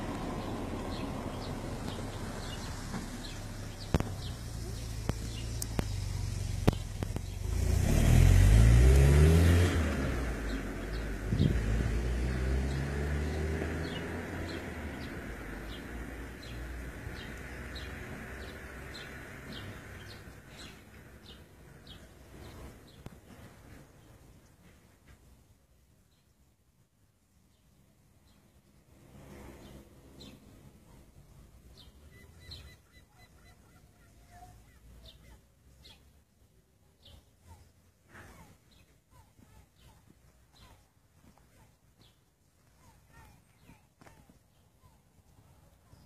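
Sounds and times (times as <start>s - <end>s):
vehicle driving past: 0.0s - 20.3s
faint bird chirps: 29.6s - 36.1s.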